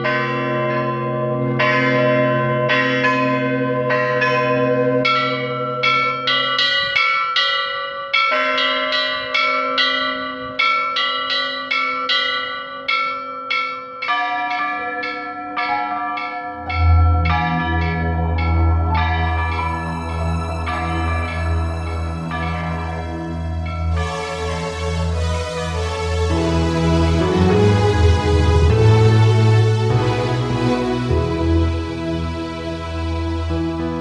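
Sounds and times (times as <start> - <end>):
church bells pealing: 0.0 - 34.0
low steady drone: 16.7 - 34.0.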